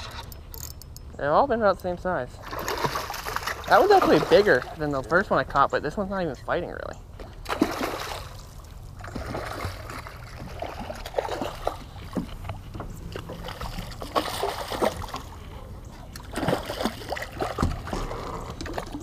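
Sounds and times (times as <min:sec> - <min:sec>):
water splashing at boat side: 0:02.4 - 0:05.2, 0:07.2 - 0:19.0
fish thrashing at surface: 0:13.0 - 0:15.4.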